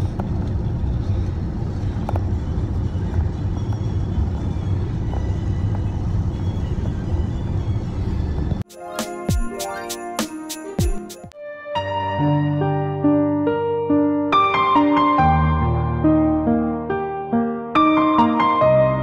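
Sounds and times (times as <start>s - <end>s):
car cabin road noise: 0.0s - 8.6s
music: 0.2s - 19.0s.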